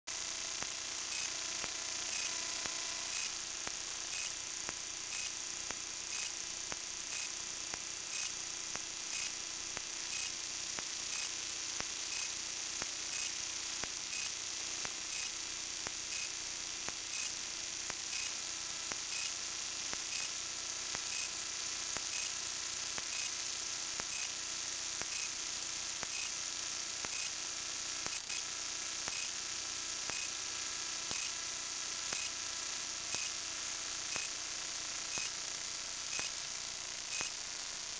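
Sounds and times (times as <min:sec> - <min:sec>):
steady high hiss: 0:00.1 - 0:18.3
faint steady hum: 0:00.1 - 0:37.9
faint ticks: 0:00.6 - 0:16.3, 0:17.1 - 0:18.4, 0:19.1 - 0:20.3, 0:20.9 - 0:21.3, 0:22.0 - 0:22.3, 0:23.0 - 0:23.4, 0:24.0 - 0:24.3, 0:25.0 - 0:25.4, 0:26.0 - 0:26.4, 0:27.0 - 0:27.4, 0:28.0 - 0:28.5, 0:29.1 - 0:29.3, 0:30.1 - 0:30.4, 0:31.1 - 0:31.4, 0:32.1 - 0:32.4, 0:33.1 - 0:33.4, 0:34.1 - 0:34.4, 0:35.0 - 0:35.4, 0:36.1 - 0:36.4, 0:37.1 - 0:37.4.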